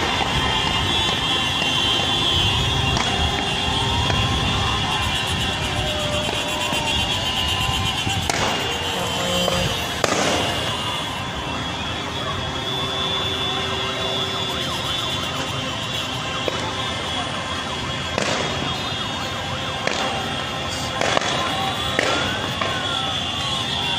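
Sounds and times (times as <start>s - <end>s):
crowded street noise: 0.0s - 23.9s
sharp bangs: 2.8s - 11.0s.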